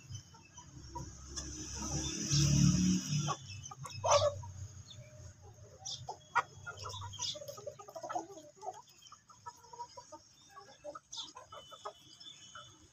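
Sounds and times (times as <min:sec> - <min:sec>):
chickens clucking: 0:00.0 - 0:12.9
chicken squawk: 0:03.1 - 0:12.9.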